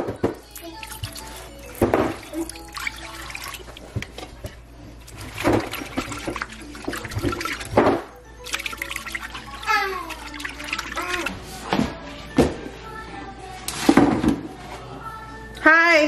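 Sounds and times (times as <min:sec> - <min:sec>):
water pouring into pot: 0:00.5 - 0:04.2, 0:05.0 - 0:11.4
whisk stirring liquid: 0:00.5 - 0:07.8, 0:08.5 - 0:11.5.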